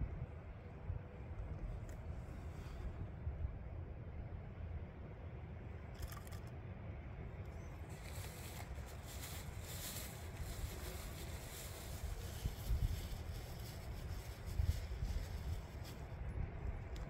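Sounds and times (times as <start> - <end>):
steady low rumble: 0.0 - 17.0
plastic bag crinkling: 7.9 - 16.1.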